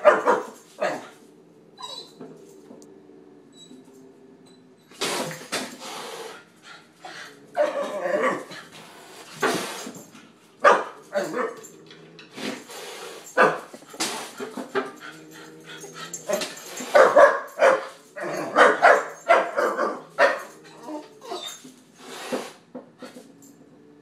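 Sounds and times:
puppy barking: 0:00.0 - 0:01.1, 0:10.6 - 0:11.6, 0:13.4 - 0:13.8, 0:16.3 - 0:20.5.

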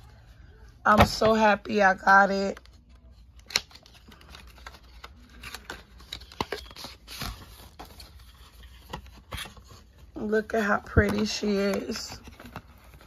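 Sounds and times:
packaging clicks and rustling: 0:02.5 - 0:10.0.

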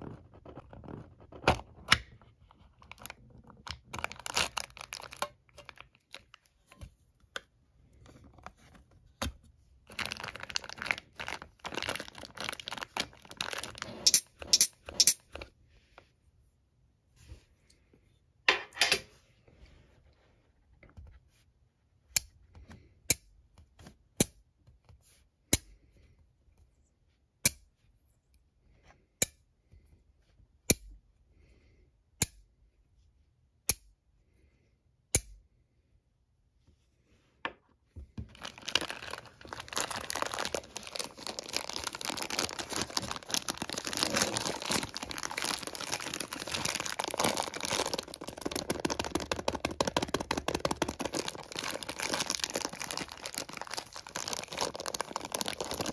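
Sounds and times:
plastic bag crinkling: 0:02.7 - 0:06.5, 0:09.8 - 0:15.3, 0:38.2 - 0:55.9.

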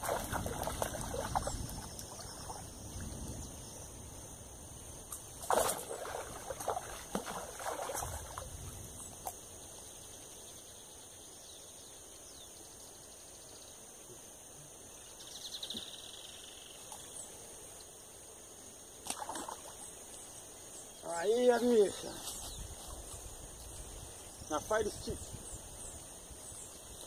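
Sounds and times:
fish splashing in reeds: 0:00.0 - 0:02.6, 0:05.4 - 0:08.5, 0:19.0 - 0:19.8
faint steady hiss: 0:00.0 - 0:27.0.

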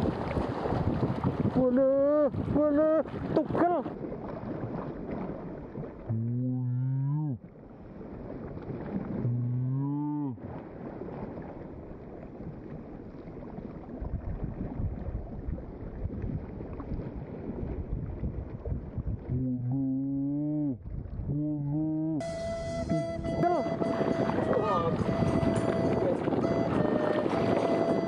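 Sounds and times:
wind on microphone: 0:00.0 - 0:06.6, 0:13.4 - 0:28.0
sea water on rocky shore: 0:00.0 - 0:28.0
long low call: 0:06.0 - 0:07.5, 0:19.2 - 0:28.0.

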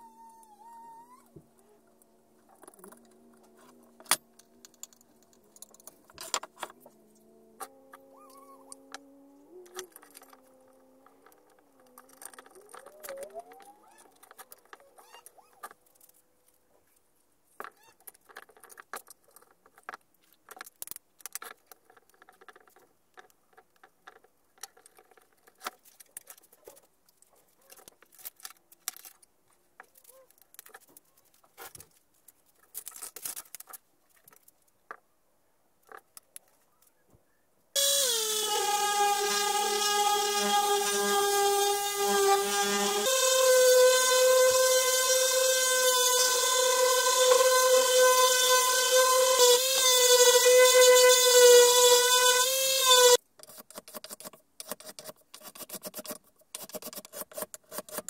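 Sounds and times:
electric sander running: 0:37.8 - 0:53.2.

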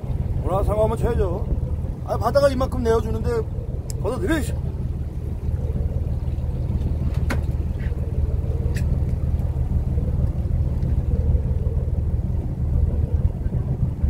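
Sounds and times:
boat engine rumbling: 0:00.0 - 0:14.0
wind buffeting microphone: 0:00.0 - 0:14.0
light click: 0:03.8 - 0:04.0.

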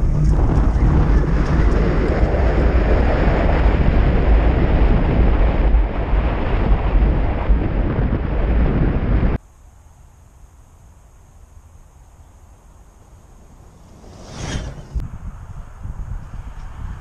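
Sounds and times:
tyres rumbling over rough ground: 0:00.0 - 0:08.4, 0:12.9 - 0:15.1
wind buffeting microphone: 0:00.0 - 0:09.4, 0:13.2 - 0:17.0.

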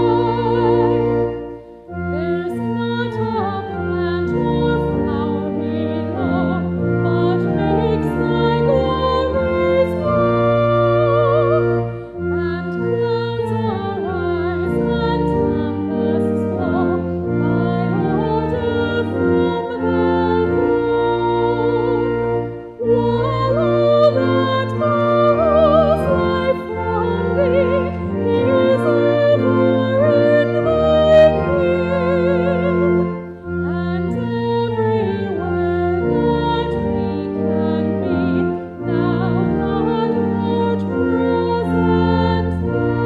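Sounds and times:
sustained organ chords: 0:00.0 - 0:43.0
woman singing with vibrato: 0:02.1 - 0:43.0.

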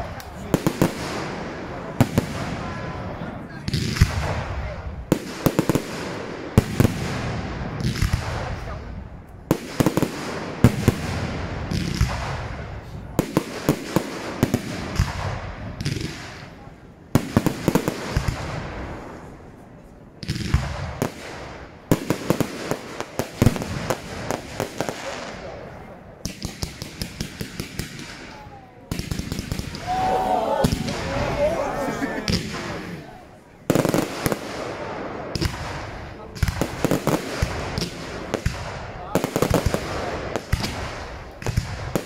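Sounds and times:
fireworks bursting with bangs: 0:00.0 - 0:19.6, 0:20.2 - 0:42.0
fireworks crackling: 0:20.3 - 0:42.0.

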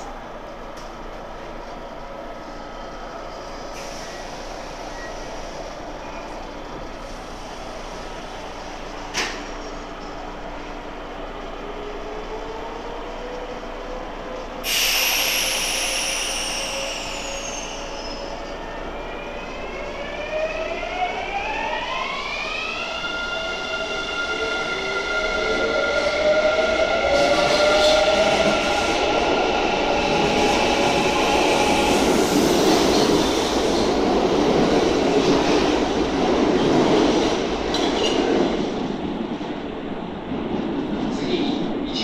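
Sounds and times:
air hiss with falling whistle: 0:14.7 - 0:18.3.

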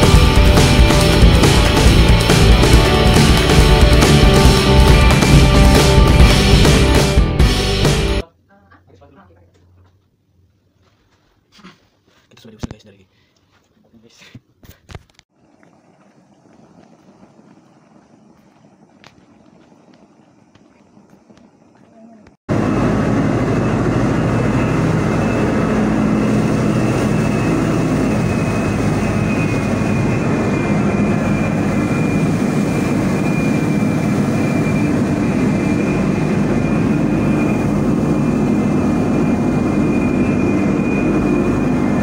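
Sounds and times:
high whine: 0:00.0 - 0:08.2, 0:22.5 - 0:42.0
ship machinery drone: 0:00.0 - 0:08.2, 0:15.4 - 0:42.0.

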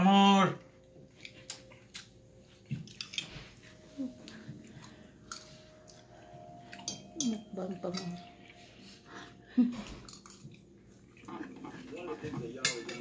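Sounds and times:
faint hum: 0:00.0 - 0:11.8
person chewing: 0:01.1 - 0:06.9, 0:09.8 - 0:11.9
cutlery scraping on plate: 0:11.2 - 0:13.0.

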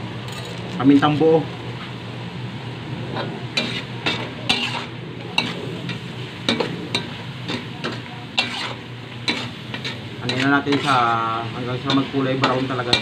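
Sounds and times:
pork sizzling: 0:00.0 - 0:13.0
metal spatula scraping wok: 0:03.2 - 0:13.0.

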